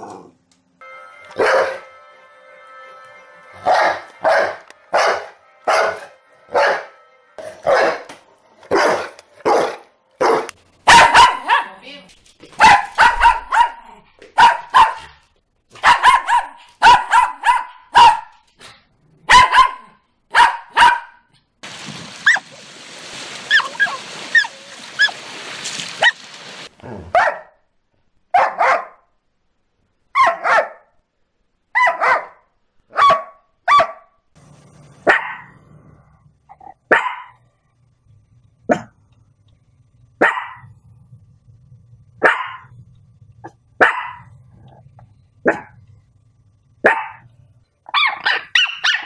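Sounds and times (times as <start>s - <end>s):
dogs barking: 7.6s - 11.8s, 12.6s - 15.2s, 15.8s - 18.4s, 19.3s - 21.2s, 27.1s - 27.6s, 28.4s - 29.0s, 30.2s - 30.9s, 31.8s - 34.0s, 35.0s - 35.5s, 36.8s - 37.4s, 40.2s - 40.7s, 42.2s - 42.7s, 43.8s - 44.4s, 45.4s - 45.8s, 46.8s - 47.3s, 47.9s - 49.0s
surf washing over pebble beach: 21.6s - 26.7s.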